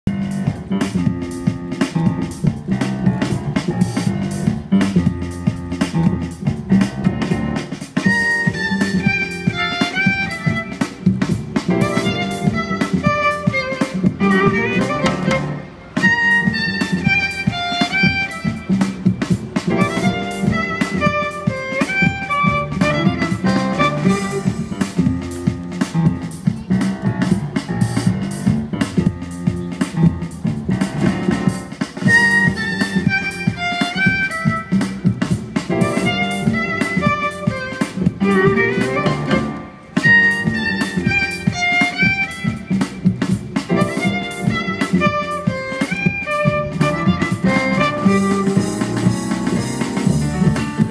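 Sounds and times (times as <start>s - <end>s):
plucked double bass: 0.1s - 50.9s
bowed violin melody: 8.1s - 18.8s, 19.7s - 24.8s, 32.1s - 42.9s, 43.7s - 50.9s.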